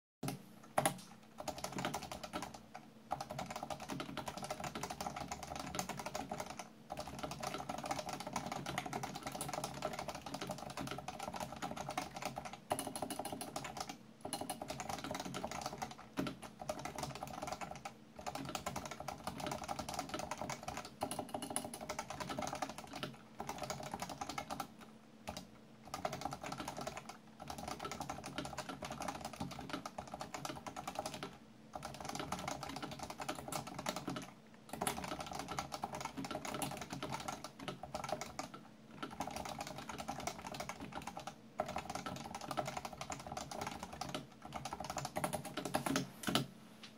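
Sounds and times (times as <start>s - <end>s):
fast typing on keyboard: 0.2s - 46.5s.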